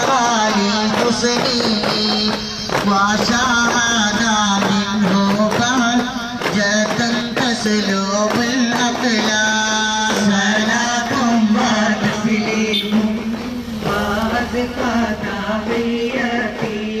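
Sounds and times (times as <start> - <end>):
ornamented vocal melody: 6.6 - 17.0.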